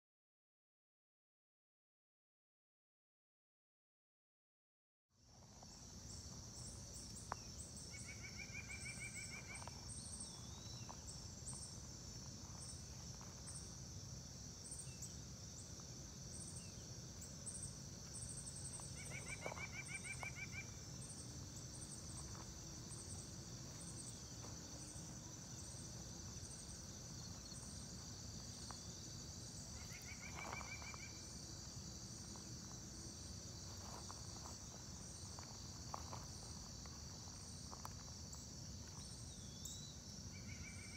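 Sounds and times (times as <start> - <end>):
insects buzzing: 5.2 - 40.9
pulsing insect chirp: 5.3 - 40.9
bird trill: 18.6 - 20.8, 29.8 - 31.2.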